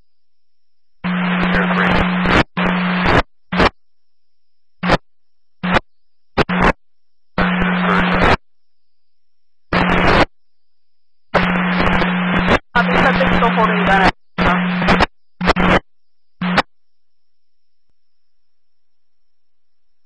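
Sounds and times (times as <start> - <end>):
low radio hum: 0.5 - 3.7, 4.8 - 5.0, 5.6 - 6.8, 7.4 - 8.4, 9.7 - 10.3, 11.3 - 16.7
radio scanner static bursts: 1.0 - 3.7, 4.8 - 5.0, 5.6 - 5.8, 6.4 - 6.8, 7.4 - 8.4, 9.7 - 10.3, 11.3 - 16.7.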